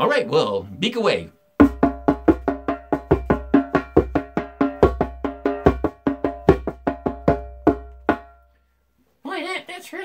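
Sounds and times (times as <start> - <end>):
fast taps on djembe: 1.6 - 8.4.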